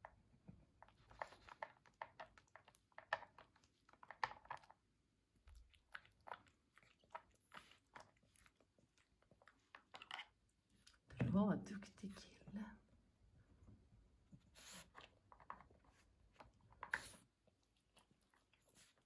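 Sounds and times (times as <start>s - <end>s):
dog crunching dry treats: 1.0s - 4.9s.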